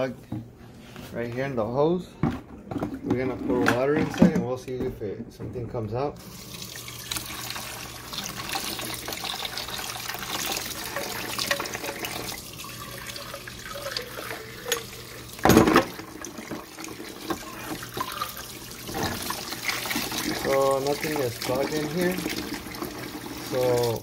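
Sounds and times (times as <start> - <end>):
water splashing into plastic bucket: 15.4 - 24.0.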